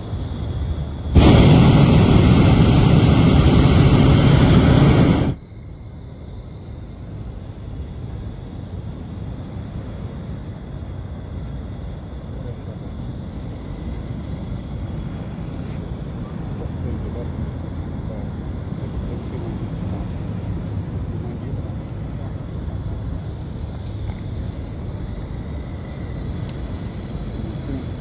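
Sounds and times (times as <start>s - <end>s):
propane burner roaring: 1.0s - 5.4s, 13.0s - 28.0s
low background noise: 2.7s - 28.0s.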